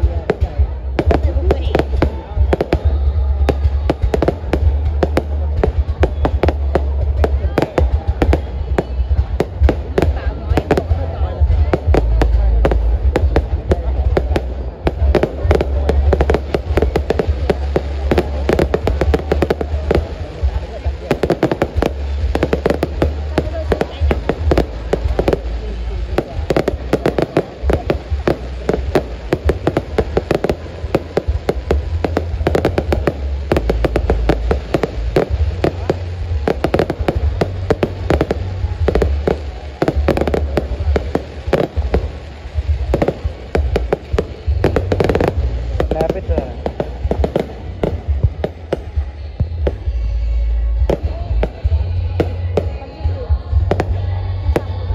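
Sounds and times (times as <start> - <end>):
fireworks bangs and crackles: 0.0 - 54.9
steady low rumble: 0.0 - 54.9.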